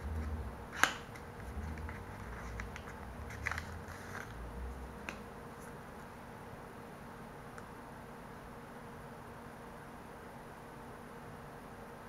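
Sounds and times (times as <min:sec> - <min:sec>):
paper packaging rustling: 0:00.0 - 0:04.4.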